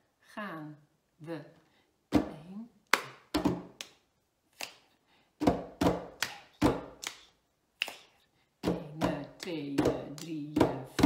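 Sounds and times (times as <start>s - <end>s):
hands clapping: 2.9s - 4.0s, 5.9s - 8.1s.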